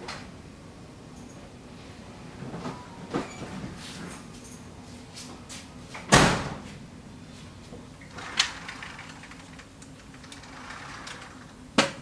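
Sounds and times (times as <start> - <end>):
door shutting with heavy thud: 6.0 - 6.7.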